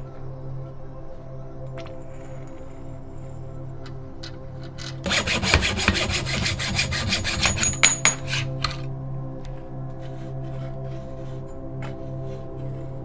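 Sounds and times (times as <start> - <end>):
background music: 0.0 - 13.0
hacksaw cutting metal tube: 5.0 - 8.8.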